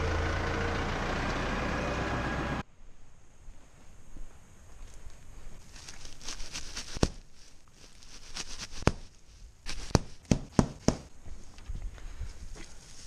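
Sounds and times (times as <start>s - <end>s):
dry straw rustling and crackling: 4.9s - 10.3s, 12.5s - 13.0s.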